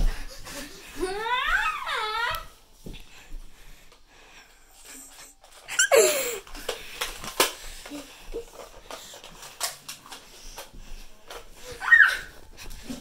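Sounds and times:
child squealing: 0:01.1 - 0:02.5, 0:11.8 - 0:12.4.

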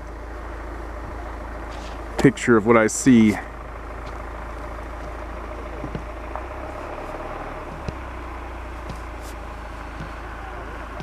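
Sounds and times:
low rumbling background noise: 0:00.0 - 0:11.0.

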